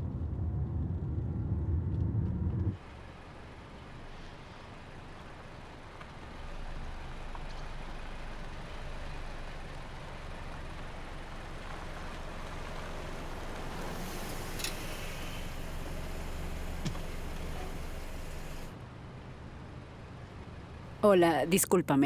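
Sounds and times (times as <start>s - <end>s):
car engine: 6.3s - 18.7s
tyres on stone paving: 9.5s - 18.7s.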